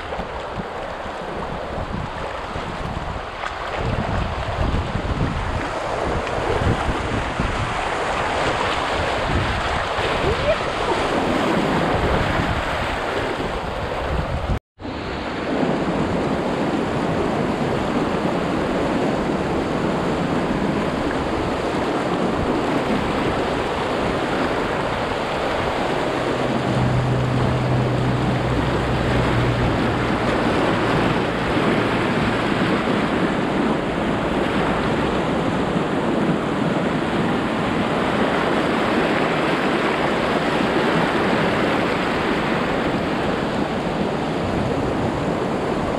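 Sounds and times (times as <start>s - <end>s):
whitewater rushing and splashing: 0.0s - 45.9s
wind buffeting microphone: 0.0s - 45.9s
low steady hum: 25.9s - 32.6s.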